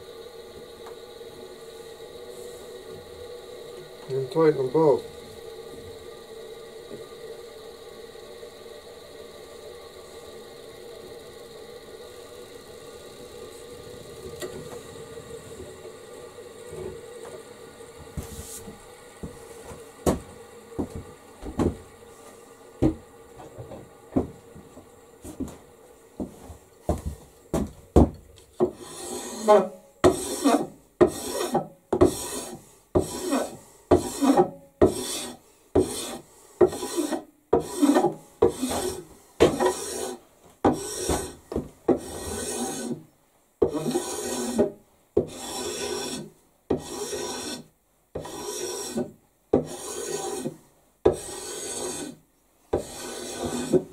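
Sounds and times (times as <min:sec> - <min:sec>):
hand file rasping on wood: 0:28.6 - 0:43.0, 0:43.6 - 0:53.9.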